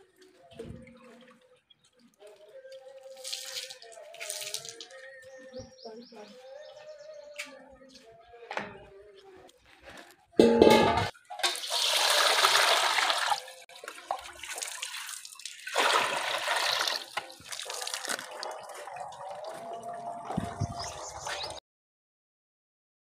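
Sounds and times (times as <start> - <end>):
water splashing into steel basin: 3.2 - 4.9, 10.4 - 20.8
metal basin knocking on concrete: 10.4 - 11.7.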